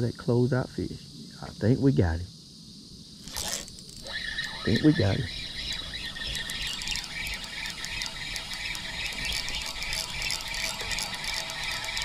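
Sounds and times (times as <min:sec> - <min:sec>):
fishing reel gears rattling: 0:03.2 - 0:12.0.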